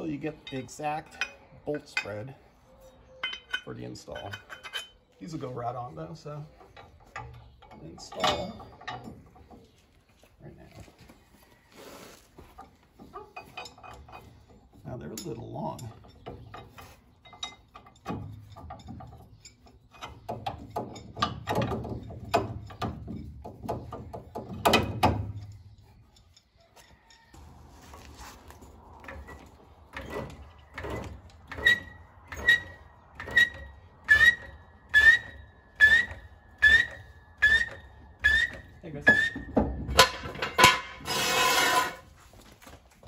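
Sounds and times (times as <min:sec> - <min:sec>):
floor jack handle thunk and squeak: 0:29.1 - 0:42.0.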